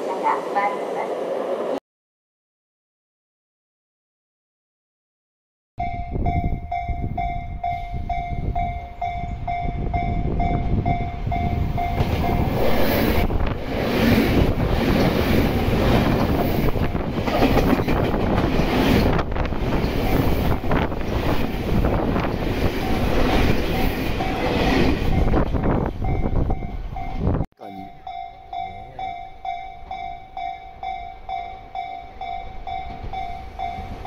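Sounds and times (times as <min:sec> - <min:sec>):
level crossing warning bell: 0:05.8 - 0:12.6, 0:22.8 - 0:34.0
electric train passing: 0:05.8 - 0:27.4, 0:28.0 - 0:34.0
wheels clacking over rail joints: 0:13.5 - 0:25.3.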